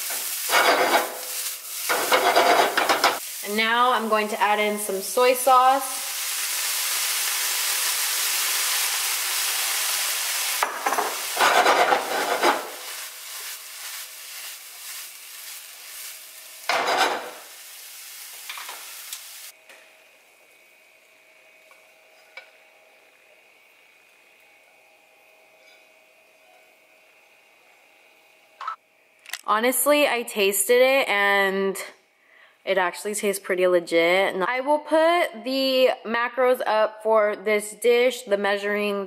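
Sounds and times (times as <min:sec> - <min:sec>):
rice stirred and scraped in pan: 0:00.0 - 0:03.4, 0:11.2 - 0:17.3
sauce sizzling in a hot pan: 0:00.0 - 0:20.8.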